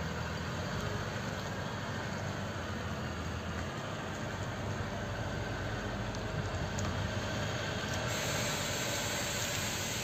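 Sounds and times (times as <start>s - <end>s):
diesel van engine running: 0.0s - 10.0s.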